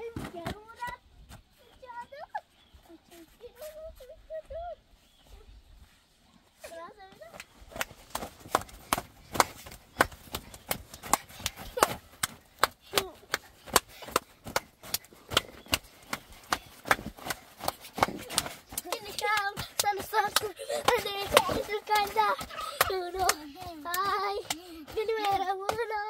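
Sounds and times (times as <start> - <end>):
children clapping: 7.4 - 25.9
children laughing: 8.1 - 26.0.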